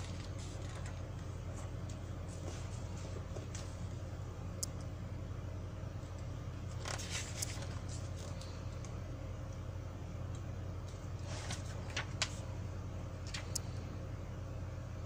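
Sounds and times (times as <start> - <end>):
magazine pages rustling: 0.0 - 1.5, 6.7 - 8.9, 10.9 - 12.5
steady low hum: 0.0 - 15.0.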